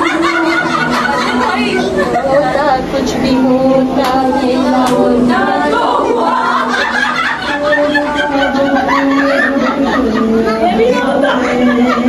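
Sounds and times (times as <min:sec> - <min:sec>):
women's voices and chuckles: 0:00.0 - 0:02.7
woman singing into a microphone: 0:00.0 - 0:12.0.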